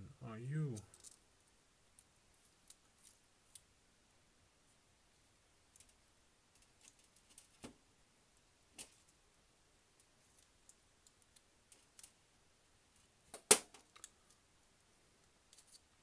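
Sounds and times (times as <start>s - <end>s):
small parts clicking together: 0.8s - 1.2s, 5.7s - 7.6s, 13.3s - 14.2s.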